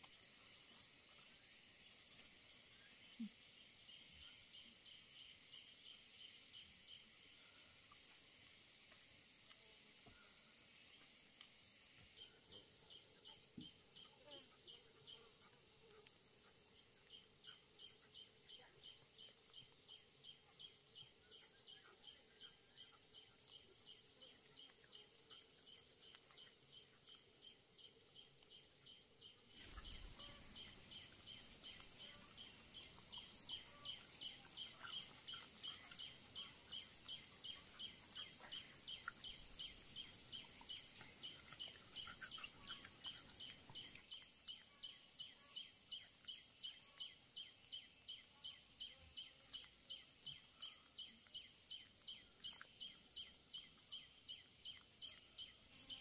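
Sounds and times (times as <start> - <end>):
insect chorus buzzing and chirping: 0.0 - 56.0.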